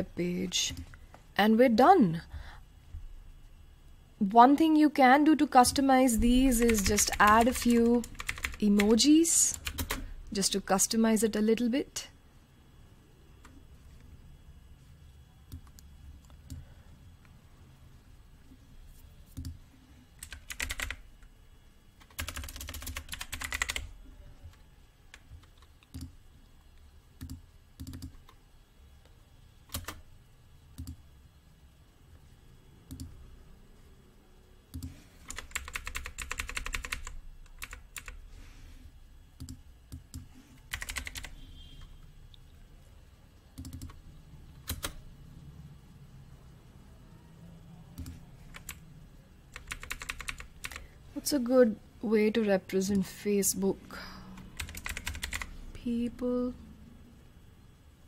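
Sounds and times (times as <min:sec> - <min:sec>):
computer keyboard typing: 0:05.6 - 0:10.1, 0:19.3 - 0:19.6, 0:20.2 - 0:21.1, 0:22.0 - 0:26.2, 0:27.2 - 0:28.4, 0:29.6 - 0:30.1, 0:30.8 - 0:31.0, 0:32.9 - 0:33.2, 0:34.7 - 0:38.2, 0:39.4 - 0:41.4, 0:43.5 - 0:45.0, 0:47.9 - 0:48.8, 0:49.5 - 0:50.9, 0:54.4 - 0:55.5.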